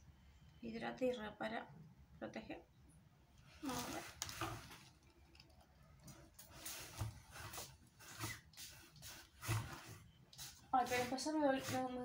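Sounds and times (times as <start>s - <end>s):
spray bottle hissing: 10.3s - 11.9s.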